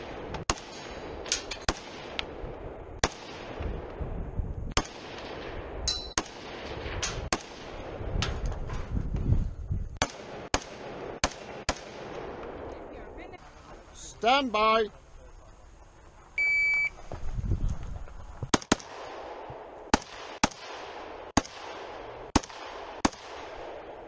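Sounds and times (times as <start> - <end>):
rifle shots: 0.0 - 4.0, 4.7 - 8.2, 10.0 - 12.9, 18.5 - 24.0.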